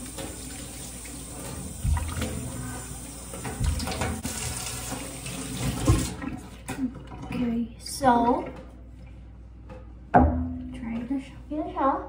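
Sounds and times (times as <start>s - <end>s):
water splashes: 0.0s - 2.8s, 3.4s - 7.4s
tap running into sink: 1.4s - 2.5s, 3.3s - 6.4s.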